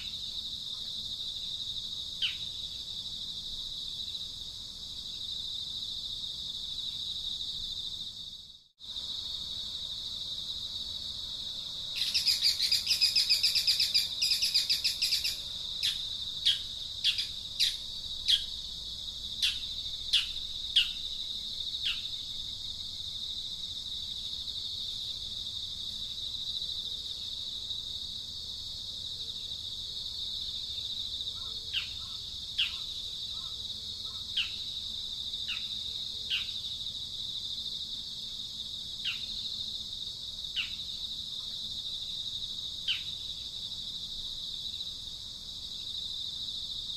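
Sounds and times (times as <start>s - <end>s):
insect drone: 0.0s - 46.9s
bird calls: 12.0s - 18.5s, 19.4s - 21.0s, 31.3s - 34.6s.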